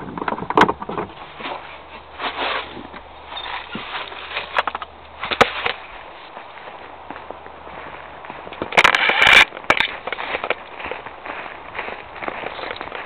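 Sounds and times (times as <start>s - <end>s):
camera handling rustles and bumps: 0.0s - 6.5s, 8.4s - 10.7s.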